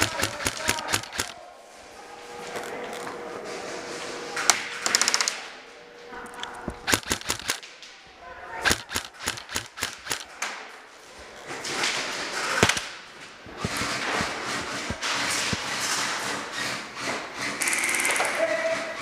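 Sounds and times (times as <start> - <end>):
airsoft guns firing: 0.0 - 1.4, 6.6 - 7.7, 8.6 - 10.4, 12.4 - 15.8
sharp clicks: 0.0 - 1.4, 6.3 - 7.6, 8.6 - 10.3, 12.6 - 12.9, 13.5 - 15.6.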